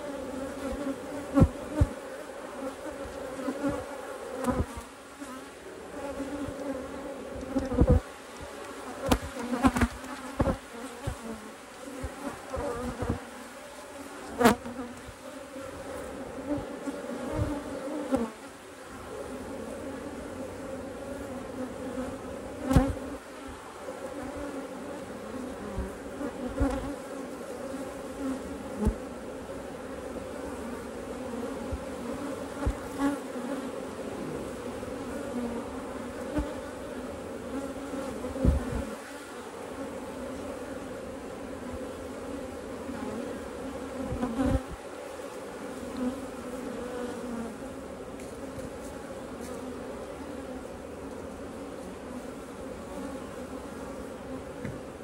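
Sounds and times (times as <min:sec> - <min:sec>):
honeybees buzzing: 0:00.0 - 0:55.0.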